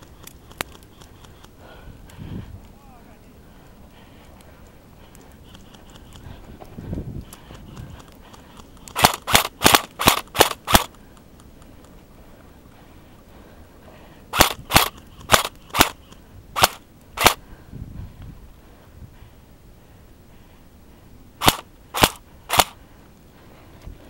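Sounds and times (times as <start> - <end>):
airsoft gun shots: 9.0 - 10.9, 14.4 - 16.0, 16.6 - 17.4, 21.4 - 22.8.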